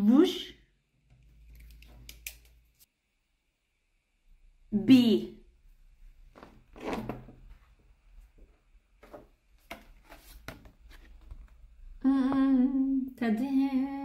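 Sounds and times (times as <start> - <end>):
paper rustling and taps: 9.0 - 11.6
woman humming: 12.0 - 14.0.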